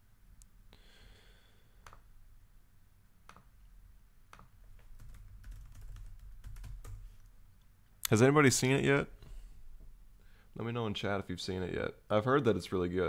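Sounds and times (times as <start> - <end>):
computer keyboard typing: 4.4 - 7.1.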